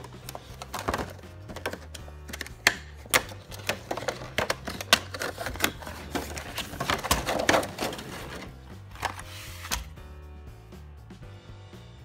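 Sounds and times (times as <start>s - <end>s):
toy box clicks and plastic snaps: 0.0s - 7.8s
background music: 0.0s - 12.0s.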